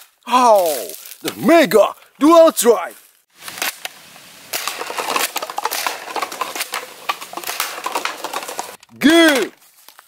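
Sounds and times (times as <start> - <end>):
plastic cups clattering: 4.6 - 9.4.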